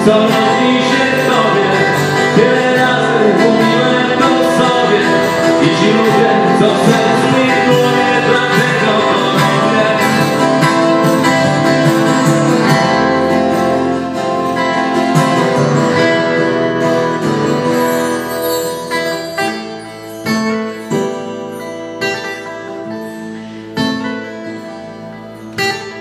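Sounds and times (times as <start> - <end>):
acoustic guitars playing: 0.0 - 26.0
electric bass guitar: 0.0 - 26.0.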